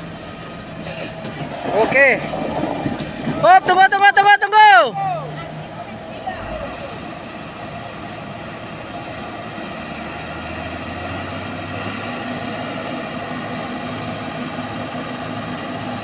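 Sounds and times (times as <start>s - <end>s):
heavy diesel engine under load: 0.0s - 16.0s.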